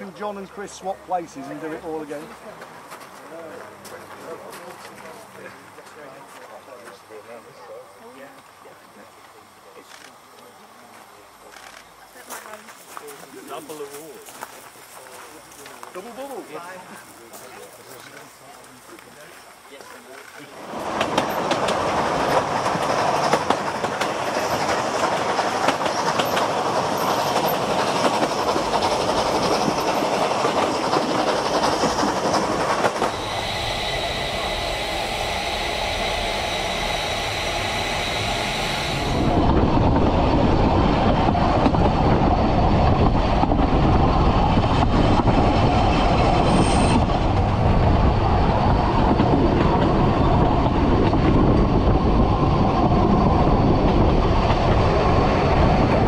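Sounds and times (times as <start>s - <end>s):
steam hissing from locomotive: 9.9s - 56.0s
moving train deep rumble: 13.3s - 56.0s
train wheels clattering and squealing: 19.9s - 34.8s, 41.1s - 56.0s.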